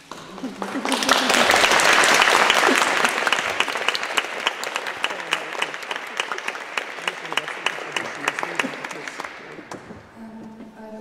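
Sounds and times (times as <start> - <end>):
guests applauding: 0.0 - 10.2.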